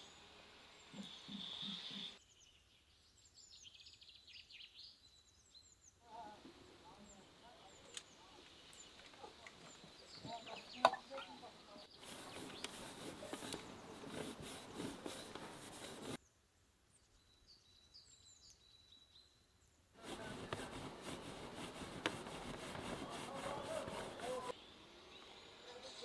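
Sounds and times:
faint bird chirp: 0:00.0 - 0:15.4, 0:16.1 - 0:20.3
box grater rasping dough: 0:12.0 - 0:16.2, 0:20.0 - 0:24.5.

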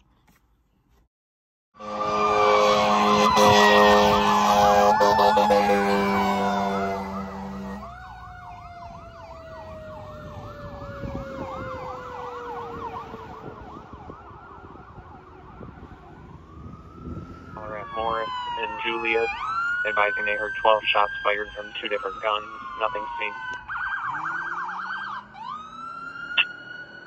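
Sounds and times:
air horn blast: 0:01.8 - 0:07.9
siren sliding down in pitch: 0:01.8 - 0:27.0
siren yelping: 0:01.8 - 0:27.0.

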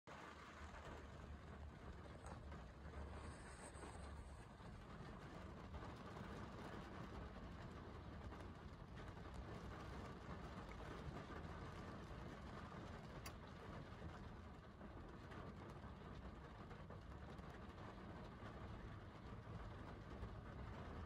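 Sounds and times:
rain hiss: 0:00.1 - 0:21.0
raindrop tap: 0:12.8 - 0:14.3.

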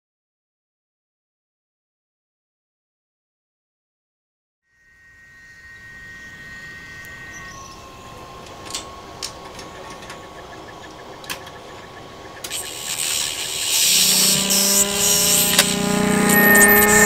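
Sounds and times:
faint steady tone: 0:04.7 - 0:17.0
loud hissing buzzing swell: 0:04.8 - 0:17.0
low hum: 0:06.0 - 0:17.0
sharp clicks: 0:12.4 - 0:17.0.

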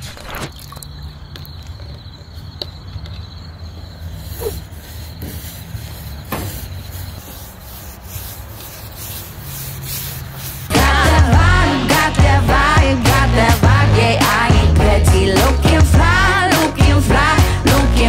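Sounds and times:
steady rubbing on a surface: 0:04.1 - 0:13.6.

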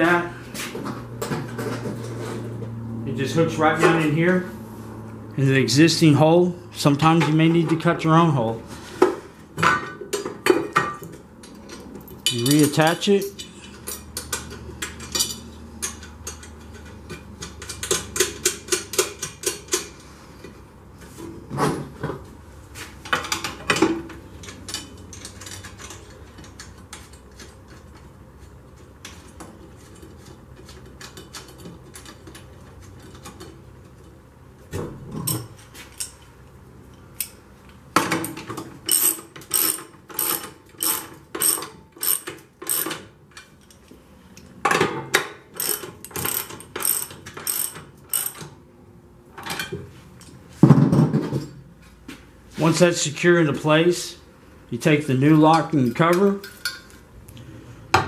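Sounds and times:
ratchet wrench clicking: 0:38.9 - 0:43.0, 0:45.6 - 0:48.5.

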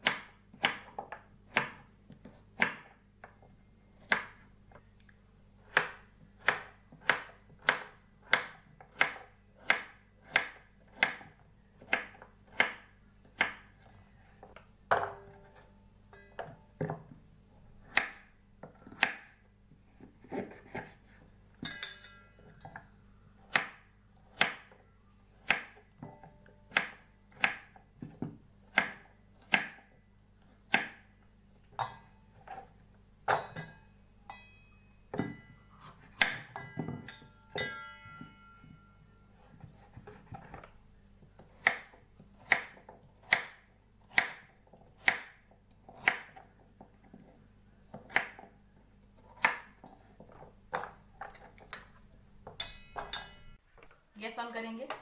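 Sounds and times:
knife chopping on wooden board: 0:00.0 - 0:02.9, 0:05.6 - 0:13.7, 0:17.8 - 0:19.3, 0:25.4 - 0:29.9, 0:30.7 - 0:31.0, 0:41.4 - 0:46.5, 0:49.3 - 0:51.7.

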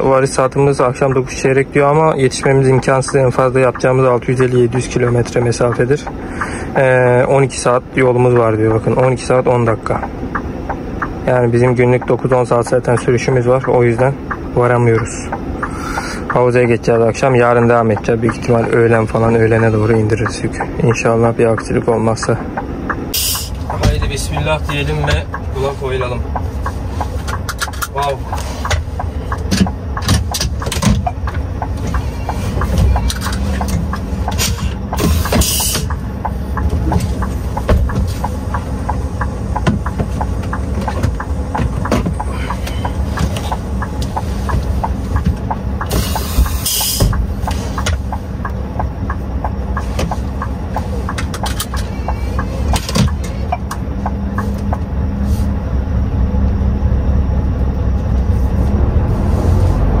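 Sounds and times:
truck engine rumbling: 0:00.0 - 1:00.0
air brake hiss: 0:23.2 - 0:23.6, 0:34.4 - 0:35.9, 0:45.9 - 0:47.8, 0:55.2 - 0:55.6.

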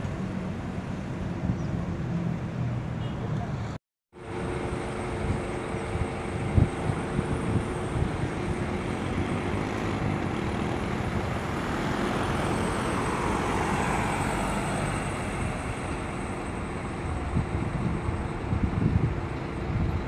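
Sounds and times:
bus engines idling: 0:00.0 - 0:20.0
traffic noise: 0:00.0 - 0:20.0
vehicle passing by: 0:08.3 - 0:16.4.

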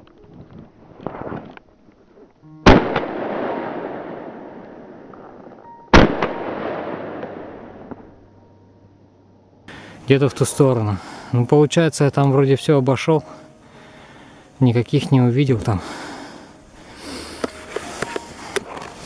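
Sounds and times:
shotgun shots with echo: 0:02.7 - 0:05.0, 0:06.0 - 0:07.6.

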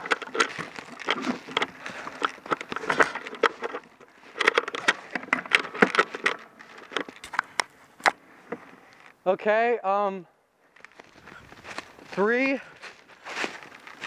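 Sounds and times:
rifle handling clicks: 0:00.0 - 0:08.2
footsteps crunching through snow: 0:00.0 - 0:09.0, 0:10.7 - 0:14.0.

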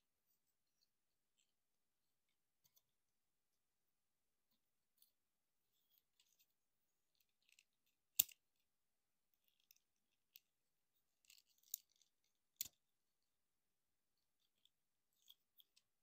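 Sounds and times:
plastic toy parts clicking: 0:07.1 - 0:08.4, 0:11.2 - 0:12.8.

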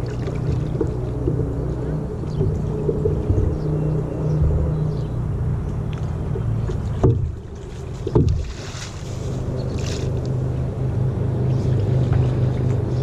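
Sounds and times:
sharp knocks: 0:06.3 - 0:07.4, 0:08.0 - 0:08.6.

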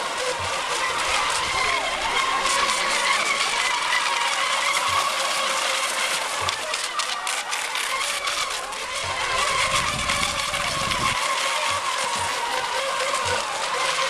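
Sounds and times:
model boat motors whining: 0:00.0 - 0:14.0
spray and wind hiss: 0:09.0 - 0:13.5.

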